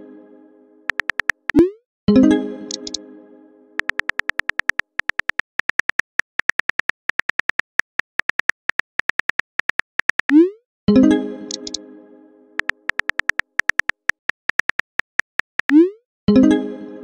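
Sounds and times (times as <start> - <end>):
phone keyboard key clicks: 0.9 - 1.6, 2.7 - 3.0, 3.8 - 10.4, 11.5 - 11.8, 12.6 - 15.8.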